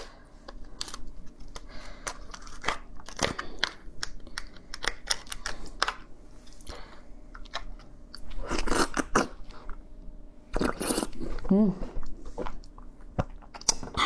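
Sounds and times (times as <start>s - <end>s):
crab shell cracking and snapping: 0.4s - 6.1s.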